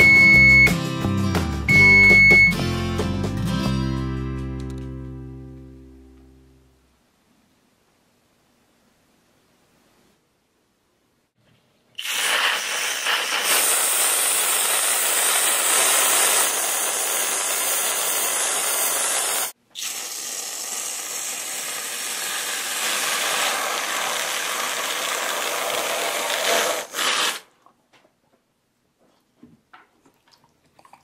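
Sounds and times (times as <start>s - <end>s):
whipped cream can hissing: 12.0s - 27.5s.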